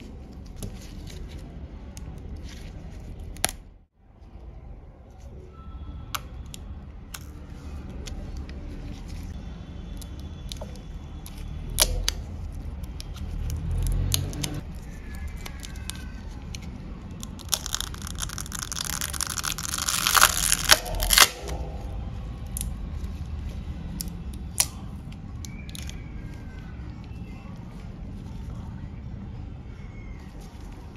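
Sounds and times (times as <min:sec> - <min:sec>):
battery adhesive tearing and peeling: 0:17.2 - 0:21.6.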